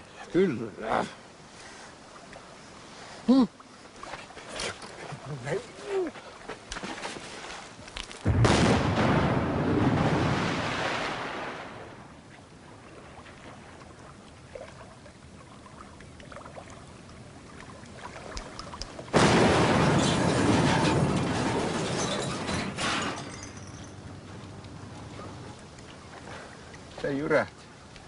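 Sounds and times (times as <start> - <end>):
grenade explosions: 8.2 - 11.8, 19.1 - 23.1.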